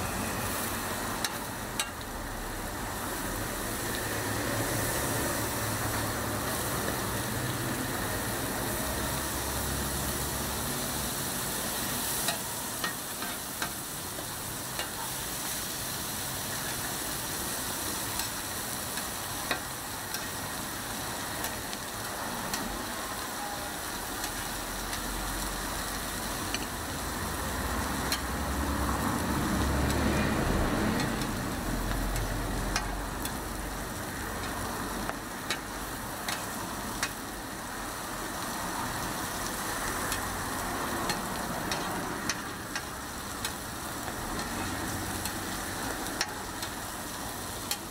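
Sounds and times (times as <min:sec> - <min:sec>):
food sizzling on a griddle: 0:00.0 - 0:47.9
metal utensils clicking on griddle: 0:01.2 - 0:02.1, 0:11.8 - 0:15.6, 0:17.9 - 0:22.8, 0:24.0 - 0:28.4, 0:31.0 - 0:37.3, 0:38.4 - 0:47.9.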